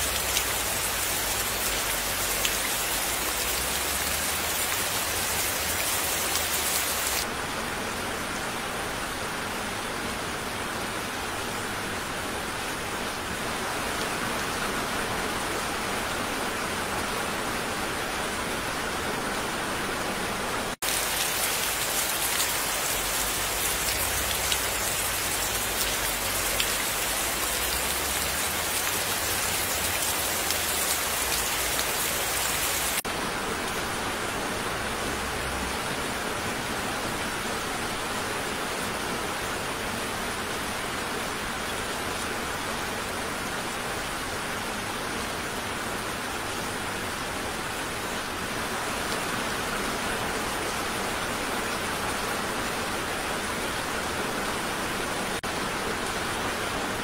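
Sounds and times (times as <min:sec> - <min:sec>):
raindrops pattering: 0:00.0 - 0:07.2, 0:20.8 - 0:33.0
steady rain falling: 0:00.0 - 0:57.0.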